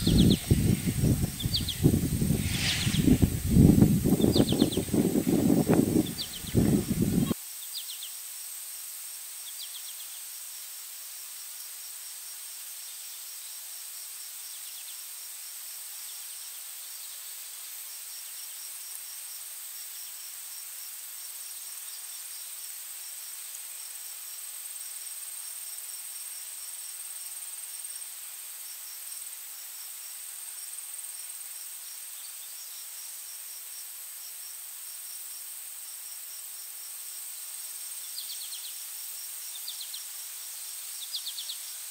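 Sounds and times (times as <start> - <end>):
faint bird chirp: 0.0 - 8.2, 38.0 - 38.9, 39.5 - 41.8
insects chirping: 0.0 - 41.9
steady high hiss: 0.0 - 41.9.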